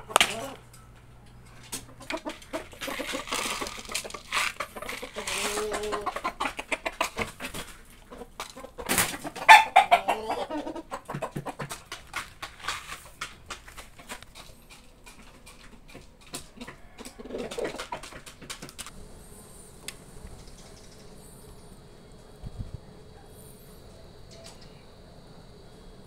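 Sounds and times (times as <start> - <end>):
chickens clucking: 0.0 - 26.0
faint high hum: 18.9 - 26.0.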